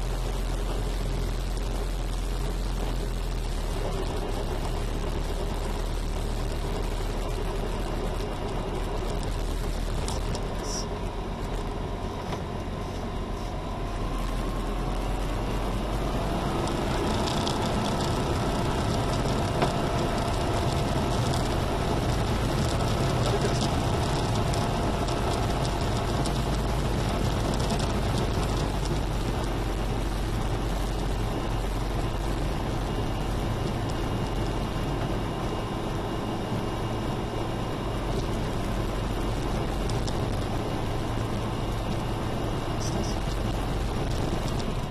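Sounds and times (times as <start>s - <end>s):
aircraft engine and propeller drone: 0.0s - 44.9s.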